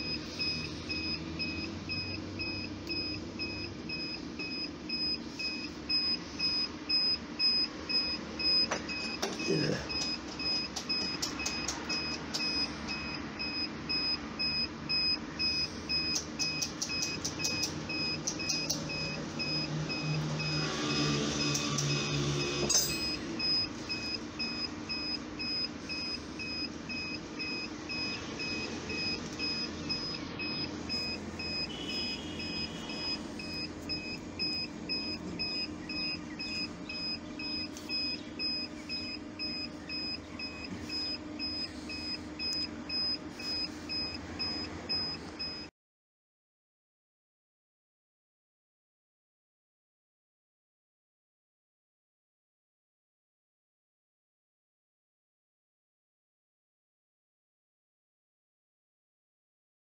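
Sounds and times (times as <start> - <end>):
rapid electronic beeps: 0.0 - 45.7
sharp click: 16.1 - 18.9.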